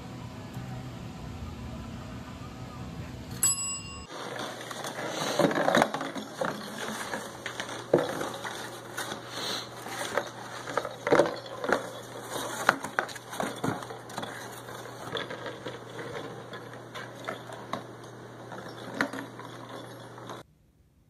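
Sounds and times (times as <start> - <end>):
service bell ding: 3.4 - 4.1.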